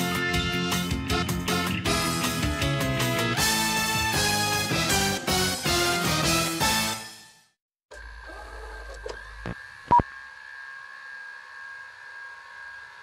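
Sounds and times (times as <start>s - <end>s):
electronic hum with high tones: 7.9s - 13.0s.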